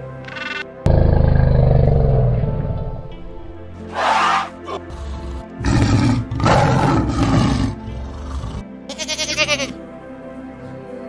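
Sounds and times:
background music: 0:00.0 - 0:11.0
tiger growling: 0:00.9 - 0:08.7
goat bleating: 0:08.9 - 0:09.8.

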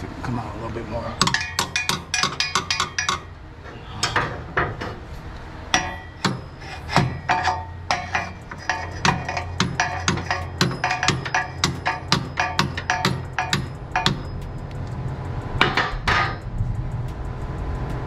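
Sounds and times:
hammer striking metal: 0:01.2 - 0:03.3, 0:05.7 - 0:14.6, 0:15.6 - 0:16.5.

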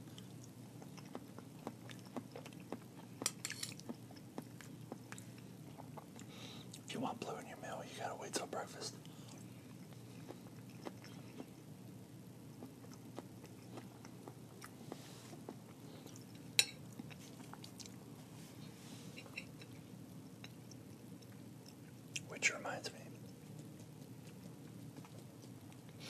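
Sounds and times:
close chewing: 0:00.0 - 0:06.9, 0:09.0 - 0:11.7, 0:12.4 - 0:18.1, 0:23.2 - 0:26.0
low steady hum: 0:00.0 - 0:26.0.

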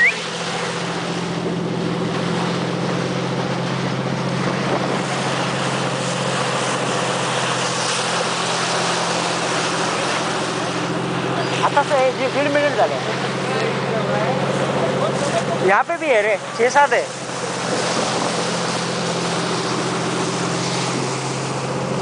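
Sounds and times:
boat engine humming: 0:00.0 - 0:22.0
water rushing along hull: 0:00.0 - 0:22.0.

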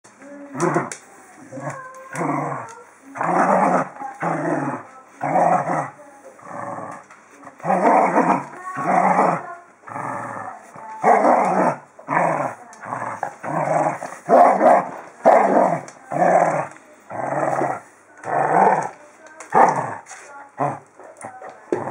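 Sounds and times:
dog growling: 0:00.2 - 0:21.9.

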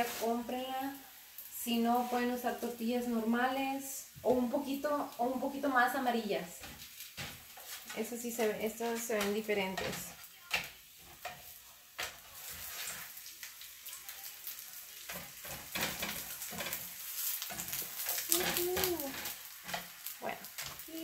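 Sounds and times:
tortillas sizzling in lard: 0:00.0 - 0:21.0
metal tongs scraping pan: 0:06.5 - 0:13.2, 0:15.0 - 0:20.9.

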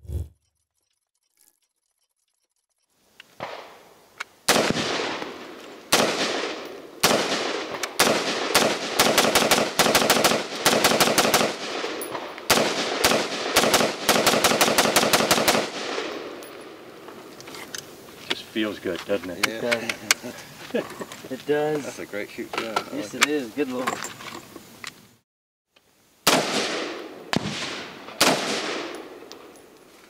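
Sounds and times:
rifle shots with echo: 0:04.5 - 0:16.8, 0:26.3 - 0:29.3.

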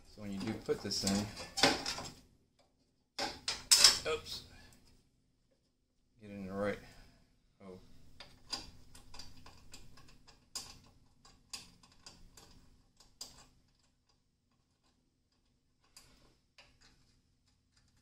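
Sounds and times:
metal parts clicking and tapping: 0:00.4 - 0:02.2, 0:03.2 - 0:04.0, 0:08.2 - 0:18.0.

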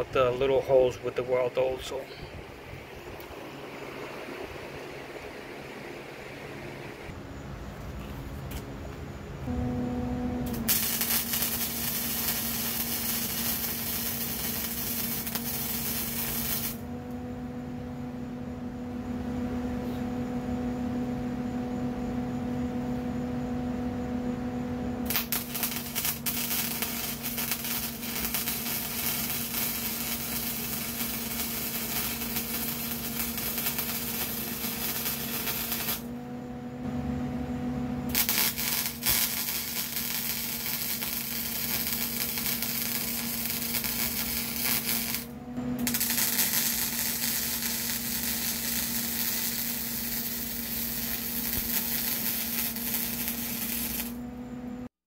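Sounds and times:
steady hum: 0:00.0 - 0:54.9
arc welding crackle: 0:10.4 - 0:17.2, 0:24.9 - 0:36.1, 0:38.1 - 0:54.2.

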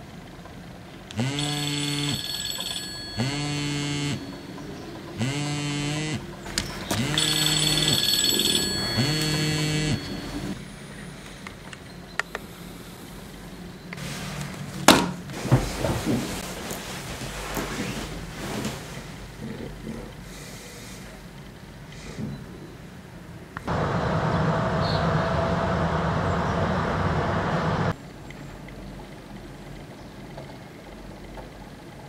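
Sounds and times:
electronic alarm beeping: 0:01.2 - 0:10.7.

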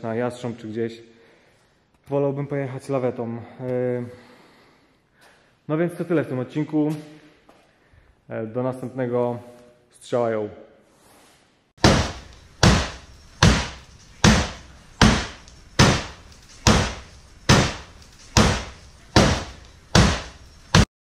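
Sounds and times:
hammer blows on steel door: 0:11.8 - 0:20.9.

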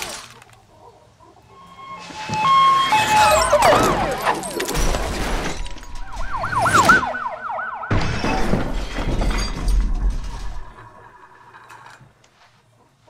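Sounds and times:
wavering tone: 0:01.4 - 0:04.4
sliding warbling whistle tones: 0:01.4 - 0:04.7.

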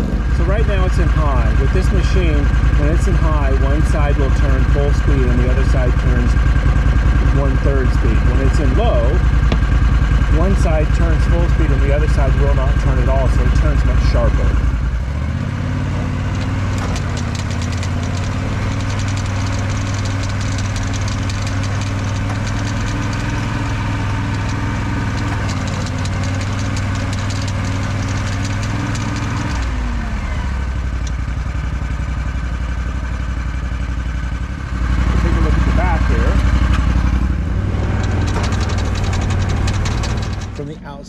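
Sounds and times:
atv engine running: 0:00.0 - 0:41.0
drive chains turning: 0:16.2 - 0:29.9, 0:37.8 - 0:40.6.

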